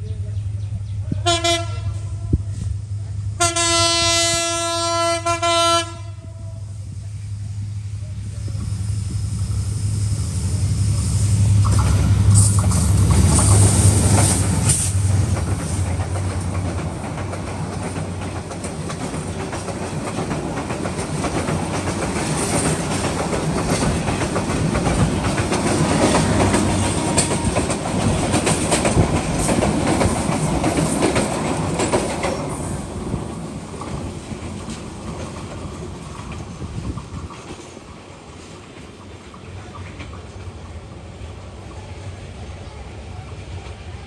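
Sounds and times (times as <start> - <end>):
locomotive engine drone: 0.0 - 31.8, 32.7 - 44.0
train wheels clacking over rail joints: 11.6 - 40.8.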